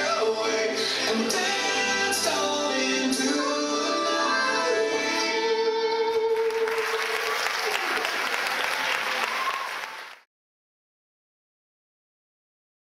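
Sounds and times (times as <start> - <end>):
dance music: 0.0 - 7.1
audience applause: 6.1 - 10.3.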